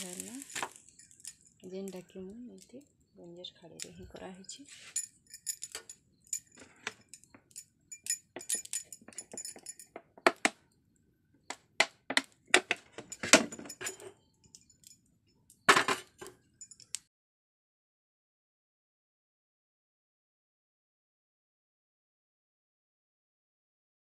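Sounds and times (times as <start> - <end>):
metal kitchen utensils clinking: 0.0 - 2.0, 3.7 - 10.0, 12.6 - 14.1.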